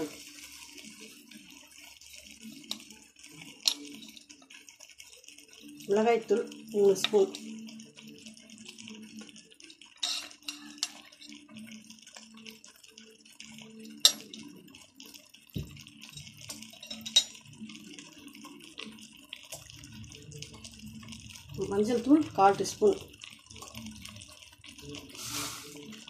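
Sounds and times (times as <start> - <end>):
chicken sizzling in a pot: 0.0 - 26.0
steel spoon clinking: 3.6 - 4.3, 10.0 - 11.4, 13.8 - 14.6, 16.1 - 17.4.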